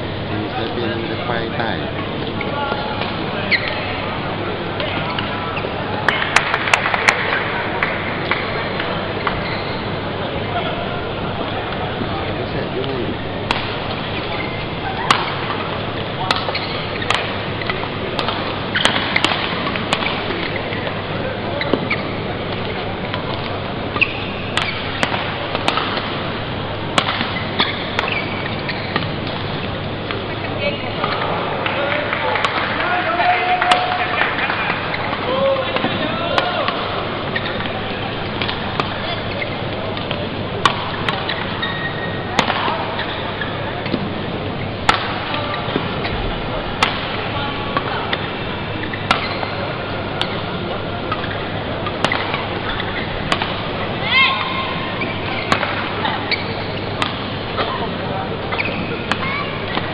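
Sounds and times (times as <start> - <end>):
arena background noise: 0.0 - 59.9
hall background noise: 0.0 - 59.9
rackets striking shuttlecock: 6.0 - 9.5, 13.4 - 14.4, 15.0 - 21.0, 21.6 - 26.3, 26.9 - 30.3, 31.0 - 32.8, 33.6 - 44.1, 44.8 - 54.0, 55.0 - 59.9.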